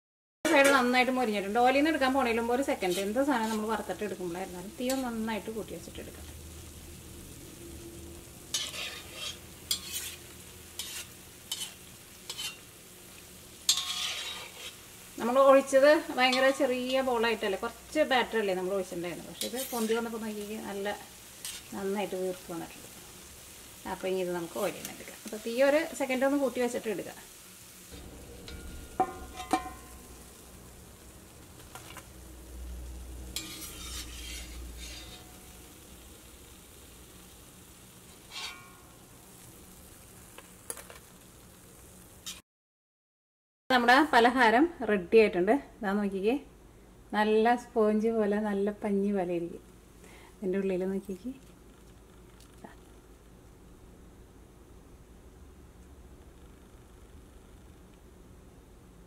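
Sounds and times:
oil sizzling: 0:00.4 - 0:42.4, 0:48.3 - 0:59.0
metal spatula scraping pan: 0:00.5 - 0:01.2, 0:02.2 - 0:03.9, 0:04.8 - 0:05.2, 0:08.5 - 0:12.7, 0:13.6 - 0:15.0, 0:16.0 - 0:17.5, 0:19.3 - 0:20.6, 0:21.3 - 0:21.8, 0:28.0 - 0:30.1, 0:33.3 - 0:35.8, 0:38.1 - 0:39.0
spatula scraping wok: 0:00.5 - 0:30.8, 0:31.4 - 0:39.4, 0:42.2 - 0:42.4
metal spatula clinking on wok: 0:13.7 - 0:14.6, 0:28.4 - 0:29.9.

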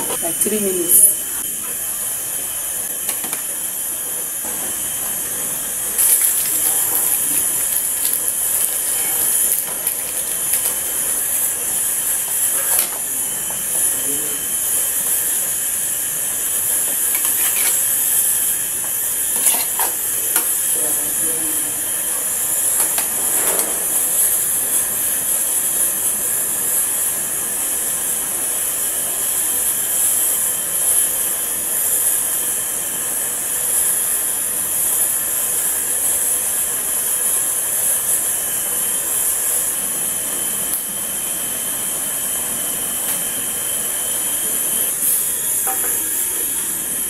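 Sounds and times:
gas flame hissing: 0:00.0 - 0:47.0
metal lid clink: 0:17.2 - 0:17.8, 0:19.4 - 0:20.5.

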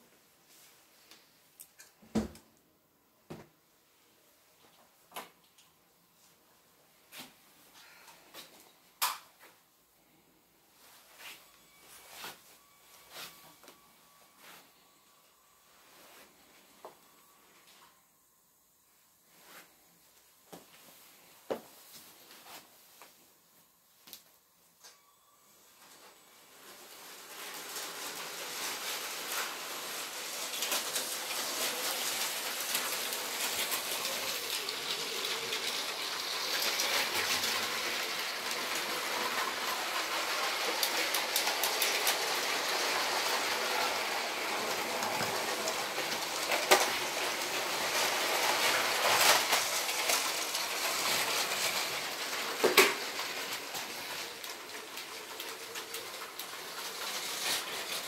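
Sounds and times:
toy train motor whirring and rattling: 0:24.9 - 0:58.0.

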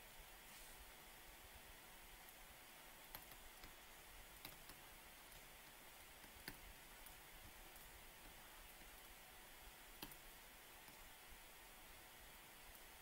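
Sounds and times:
low steady hiss: 0:00.0 - 0:13.0
pen stylus clicking on tablet: 0:04.4 - 0:04.8.

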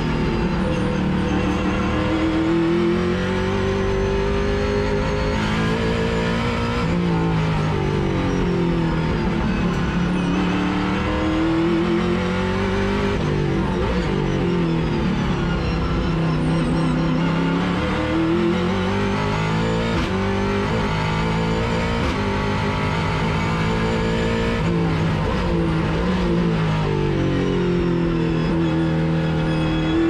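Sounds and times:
race car engine revving: 0:00.0 - 0:30.0.

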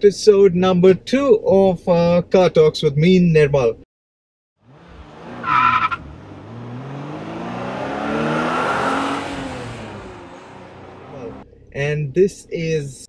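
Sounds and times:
car engine revving: 0:04.6 - 0:11.8.

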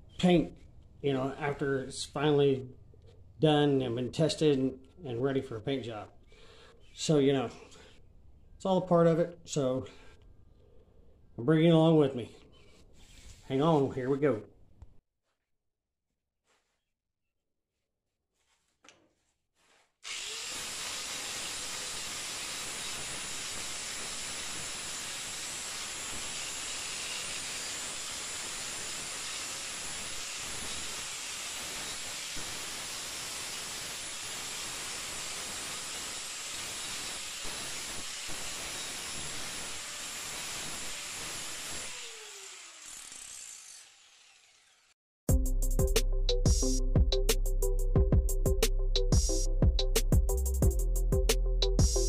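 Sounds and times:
angle grinder grinding steel: 0:20.0 - 0:45.0.

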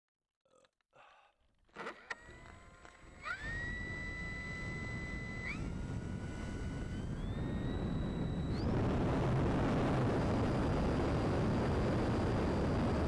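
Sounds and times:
electric motor whining: 0:01.7 - 0:13.0
propeller and wind rush: 0:03.0 - 0:13.0.

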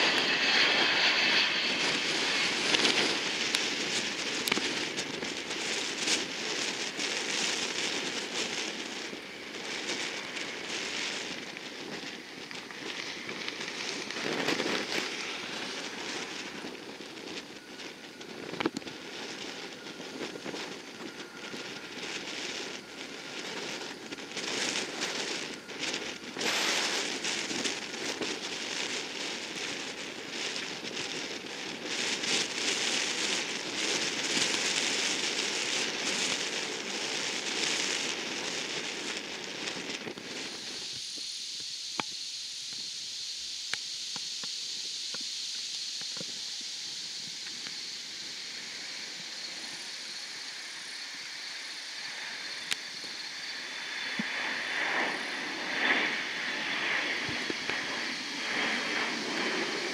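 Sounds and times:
jet engines roaring on takeoff: 0:00.0 - 0:59.9.

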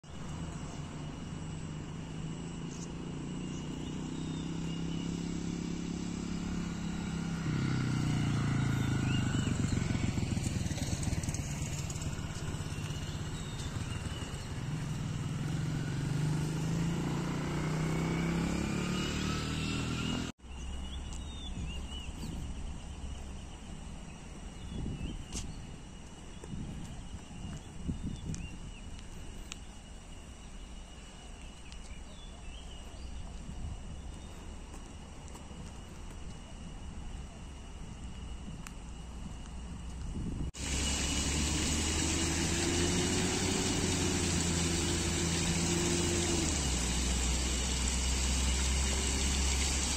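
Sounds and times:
faint chirps: 0:00.0 - 0:16.0, 0:19.3 - 0:39.1
road traffic passing: 0:00.0 - 0:24.5, 0:40.5 - 0:49.9.

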